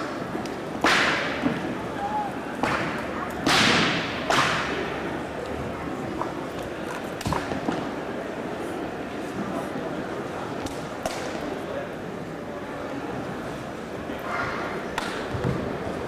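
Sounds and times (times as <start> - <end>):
crowd chatter murmur: 0.0 - 16.0
sharp echoing slaps and stomps: 0.8 - 1.6, 2.6 - 4.8.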